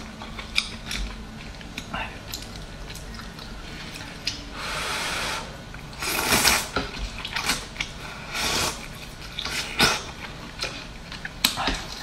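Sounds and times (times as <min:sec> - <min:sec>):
wet hissing noodle slurps: 0:04.6 - 0:06.8, 0:07.4 - 0:10.2.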